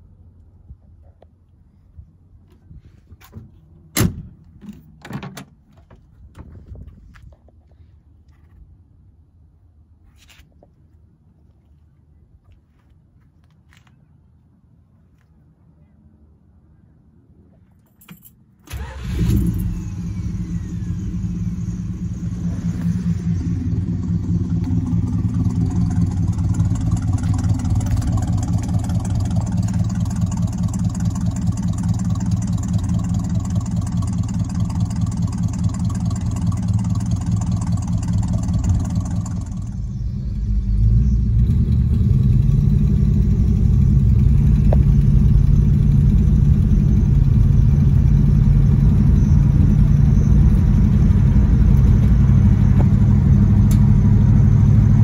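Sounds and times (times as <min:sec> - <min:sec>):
car engine starting and idling: 0:18.2 - 0:55.0
engine drone inside moving car: 0:38.0 - 0:55.0.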